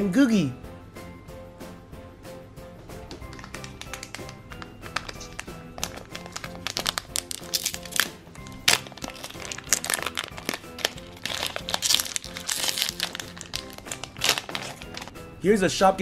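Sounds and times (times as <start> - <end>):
background music: 0.0 - 16.0
foil wrapper crinkling: 3.3 - 15.2.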